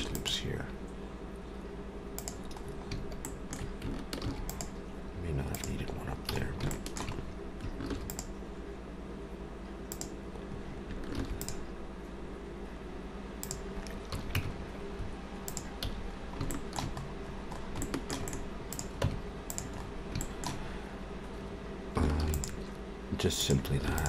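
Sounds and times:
low electrical hum: 0.0 - 24.0
mouse clicks: 2.2 - 4.8, 6.7 - 8.3, 9.9 - 10.2, 11.1 - 11.6, 13.4 - 14.5, 15.4 - 17.1, 17.8 - 20.6
keyboard keystrokes: 22.2 - 22.6.

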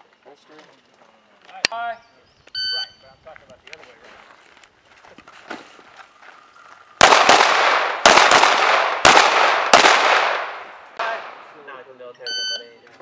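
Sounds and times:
pistol shots with echo: 7.0 - 11.6.

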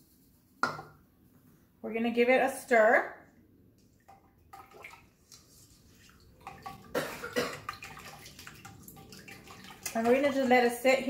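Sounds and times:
liquid swishing: 3.8 - 10.9
spoon scraping metal bowl: 5.2 - 6.9.

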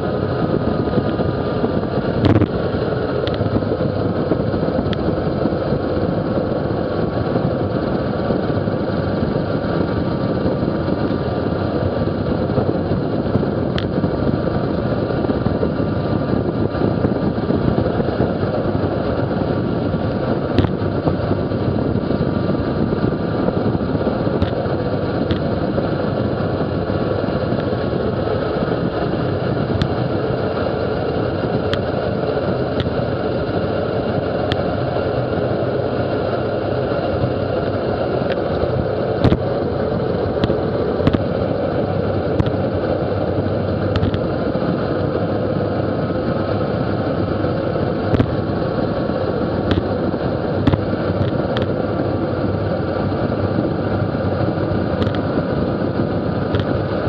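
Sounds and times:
wind rushing over microphone: 0.0 - 57.0.

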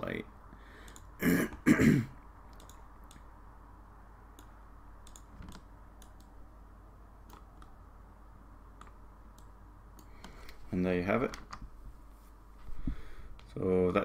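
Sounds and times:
room tone hum and hiss: 0.0 - 14.0
mouse and keyboard clicks: 2.5 - 3.3, 4.4 - 6.3, 7.2 - 7.8.

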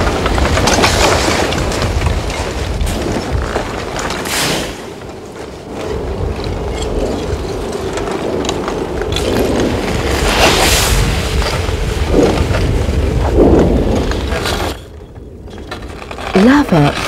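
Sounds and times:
shifting blocks crashing: 0.0 - 5.3
lava crust cracking and clinking: 0.0 - 17.0
low rumble: 5.7 - 17.0.

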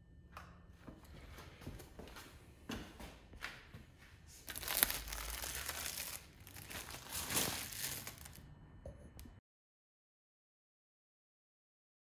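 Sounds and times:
plastic wrap crackling: 4.4 - 8.4.

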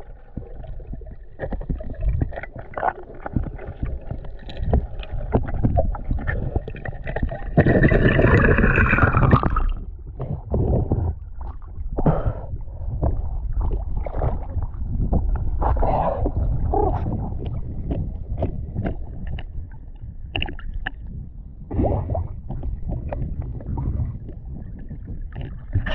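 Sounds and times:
loud bubbling: 0.0 - 11.2
water sloshing and splashing: 0.0 - 12.1, 12.7 - 25.9
wind rumble on microphone: 3.2 - 25.9.

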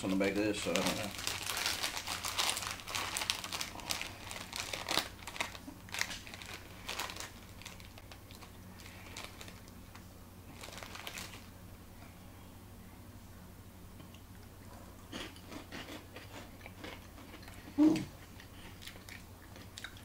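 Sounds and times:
plastic snack bag crinkling: 0.0 - 11.5.

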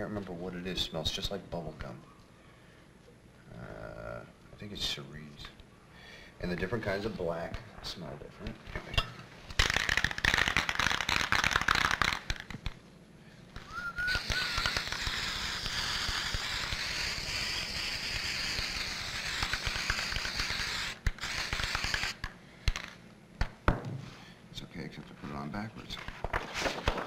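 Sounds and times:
spray paint can hissing: 9.6 - 12.8, 13.6 - 22.9.

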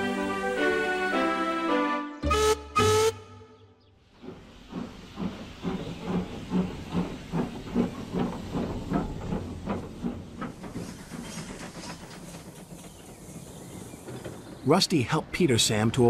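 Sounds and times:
steam locomotive chuffing: 4.0 - 16.0.

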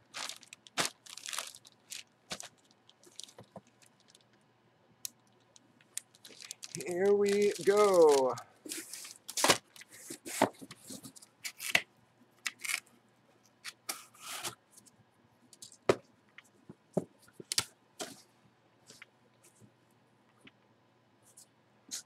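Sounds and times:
plastic bag rustling: 0.0 - 4.3, 5.9 - 11.2.

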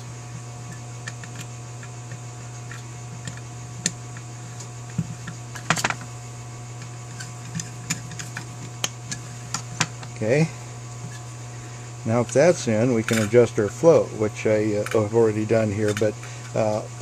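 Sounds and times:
low electrical hum: 0.0 - 17.0.

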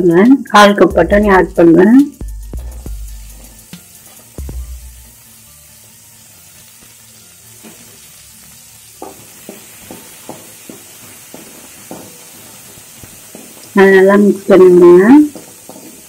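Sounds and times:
food sizzling in oil: 0.0 - 16.0
steel ladle scraping a pan: 5.8 - 8.2, 9.0 - 13.7, 14.8 - 16.0.

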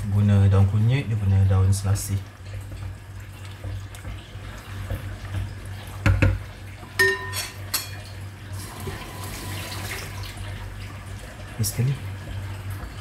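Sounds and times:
utensil knocking on cooking pot: 6.0 - 6.4
utensil clinking on pot: 6.0 - 8.1.

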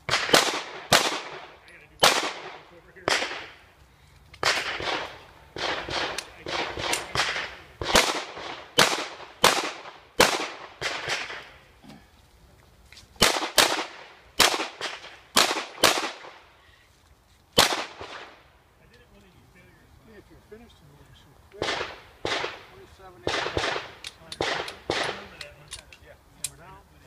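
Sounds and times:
pistol shots with ringing echoes: 0.1 - 3.6, 4.4 - 11.6, 13.2 - 16.4, 17.6 - 18.4, 21.6 - 25.4.

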